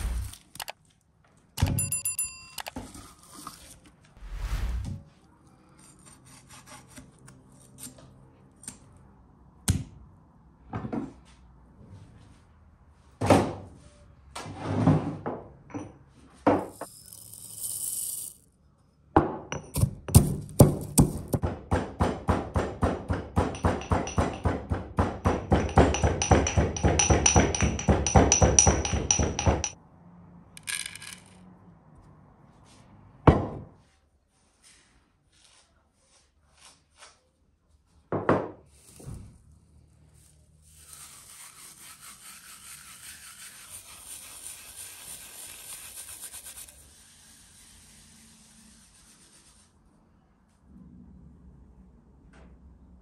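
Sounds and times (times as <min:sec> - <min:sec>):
utensil knocks and clinks: 0:23.1 - 0:29.8.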